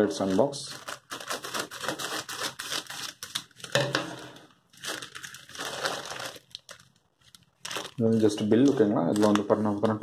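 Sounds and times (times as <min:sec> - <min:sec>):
plastic crinkling and rustling: 0:00.1 - 0:10.0.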